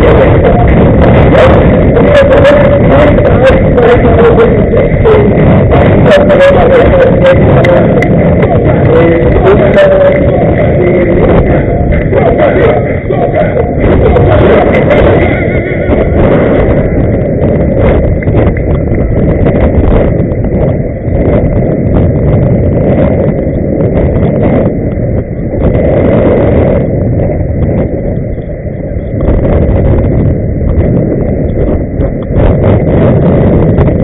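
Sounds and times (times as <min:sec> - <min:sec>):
wind rumble on microphone: 0:00.0 - 0:34.0.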